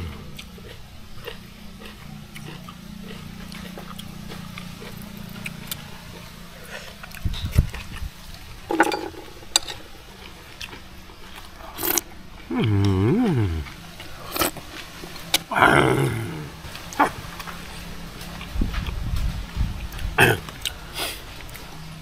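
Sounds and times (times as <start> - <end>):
person humming: 0.0 - 0.4, 12.5 - 13.8, 15.5 - 17.2
person chewing and smacking lips: 0.0 - 8.4.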